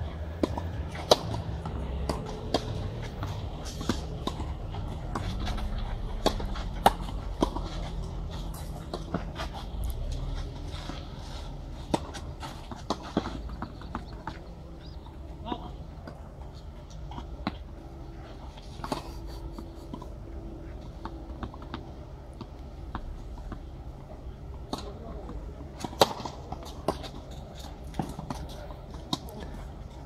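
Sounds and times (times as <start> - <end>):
rackets striking tennis ball: 0.1 - 17.7, 24.6 - 29.6
tennis ball bouncing: 0.3 - 9.7, 10.8 - 16.5, 25.8 - 27.2.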